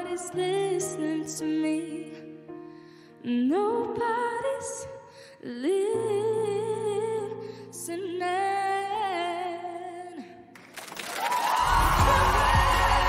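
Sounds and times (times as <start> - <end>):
girl singing a pop ballad: 0.0 - 10.5
audience applause and cheering: 10.6 - 13.0.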